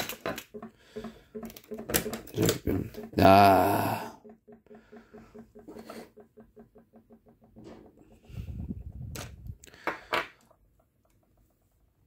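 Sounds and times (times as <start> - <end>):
metal parts clicking and clattering: 0.0 - 3.4.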